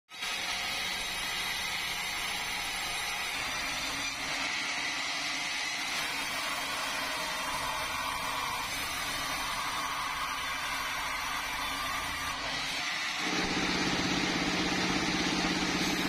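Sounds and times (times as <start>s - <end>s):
band saw cutting log: 0.1s - 16.0s
machine motor running: 10.8s - 16.0s.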